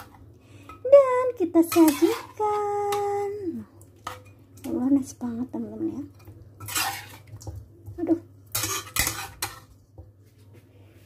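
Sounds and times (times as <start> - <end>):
utensil scraping a wok: 1.6 - 2.4, 6.6 - 7.5, 8.5 - 9.7
utensil clattering in a wok: 1.6 - 3.2, 6.0 - 9.8.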